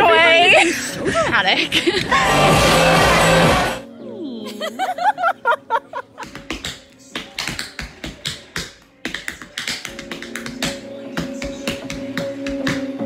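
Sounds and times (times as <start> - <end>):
music: 0.0 - 13.0
tap shoes clicking on board: 6.2 - 12.8.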